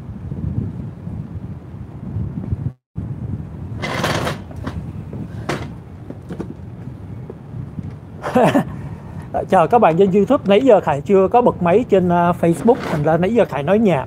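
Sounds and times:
chair click: 3.8 - 6.6, 12.6 - 13.2
metal chair scraping: 3.8 - 6.6, 12.4 - 13.7
small knocks: 3.8 - 8.0.

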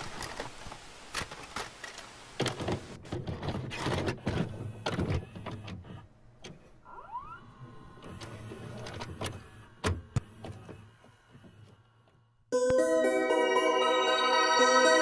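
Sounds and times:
tape mechanism clicks and clunks: 0.0 - 6.8.

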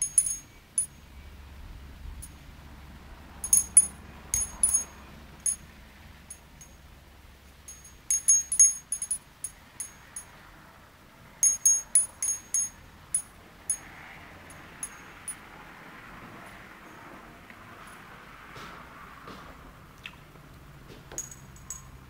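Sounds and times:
wind bell clinking: 0.0 - 1.0, 3.4 - 5.7, 6.3 - 6.8, 7.7 - 10.3, 11.4 - 13.9, 14.5 - 15.4, 21.2 - 22.0.

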